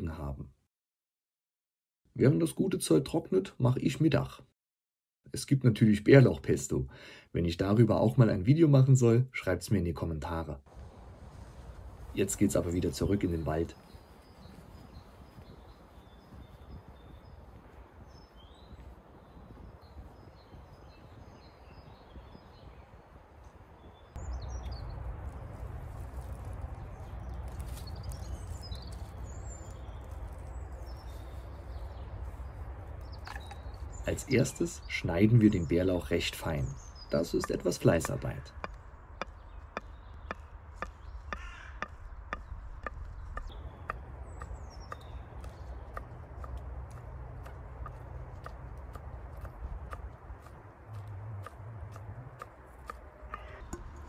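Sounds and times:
distant bird chirps: 0:12.2 - 0:54.0
high bird calls: 0:23.8 - 0:54.0
knife chopping leaves: 0:44.9 - 0:53.9.

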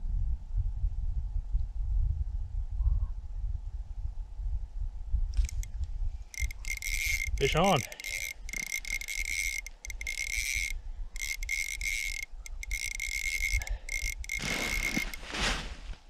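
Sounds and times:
wind rumbling on microphone: 0:00.0 - 0:07.7
fishing reel whirring: 0:05.4 - 0:05.7, 0:06.3 - 0:15.2.

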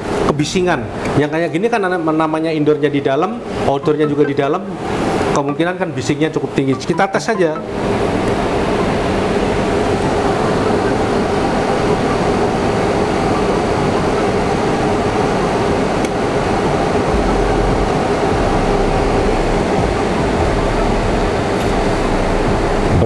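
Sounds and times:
portable air conditioner running: 0:00.0 - 0:23.0
low rumble: 0:17.1 - 0:23.0.

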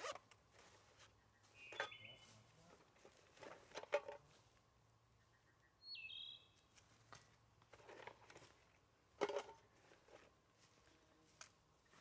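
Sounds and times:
bird call: 0:01.3 - 0:02.4, 0:05.2 - 0:06.6.

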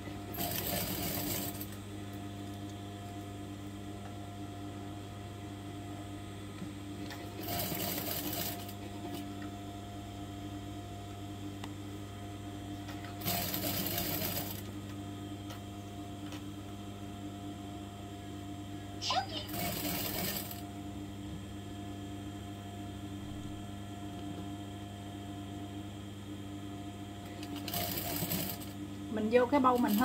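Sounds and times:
sewing machine stitching: 0:00.3 - 0:01.7, 0:07.4 - 0:08.8, 0:13.2 - 0:14.6, 0:19.4 - 0:20.6, 0:27.4 - 0:28.7, 0:29.6 - 0:30.0.

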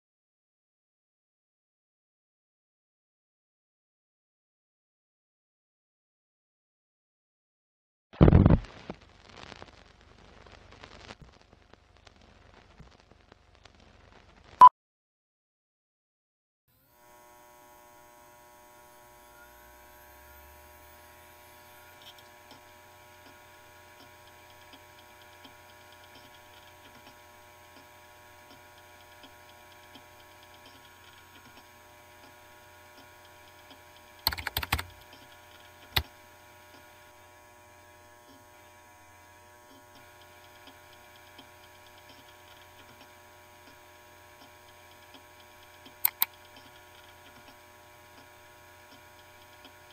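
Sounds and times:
computer electrical hum: 0:16.8 - 0:49.9
keyboard typing: 0:34.2 - 0:36.1, 0:46.1 - 0:46.7.

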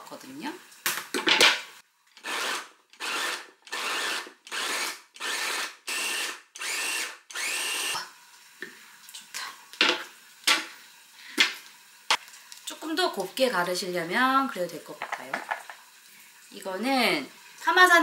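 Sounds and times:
electric chopper motor whirring: 0:02.2 - 0:08.0.

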